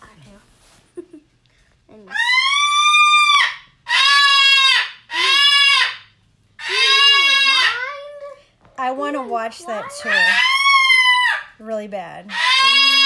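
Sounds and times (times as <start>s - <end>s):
parrot screaming: 2.0s - 8.3s, 9.1s - 11.6s, 12.3s - 13.0s.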